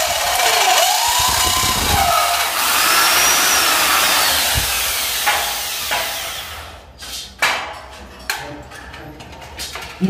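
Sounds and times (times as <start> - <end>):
electric drill boring into metal: 0.6 - 6.6.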